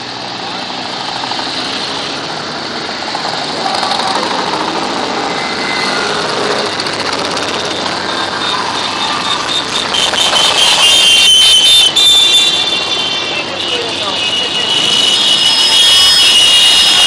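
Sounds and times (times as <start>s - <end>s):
motorcycles riding past: 0.0s - 11.0s.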